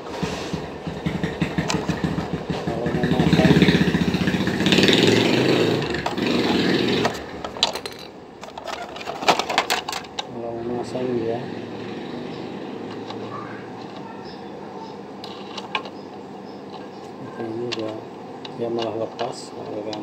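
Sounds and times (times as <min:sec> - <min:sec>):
blender motor rattling and whirring: 0:00.9 - 0:08.0.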